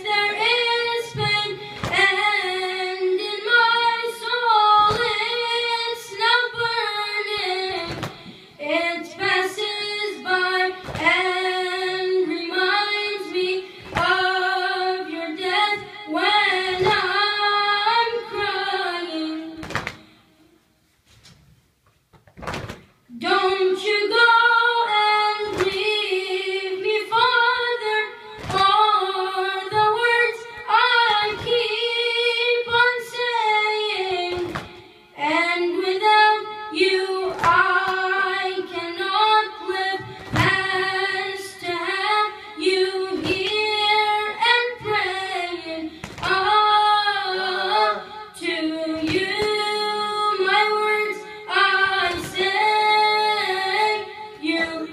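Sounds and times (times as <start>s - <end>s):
boy chanting into a microphone: 0.0s - 20.3s, 23.1s - 54.9s
chest-beating slaps: 7.7s - 8.4s, 13.8s - 14.2s, 19.6s - 20.1s, 22.1s - 22.9s, 28.4s - 28.7s, 34.3s - 34.8s, 46.0s - 46.5s.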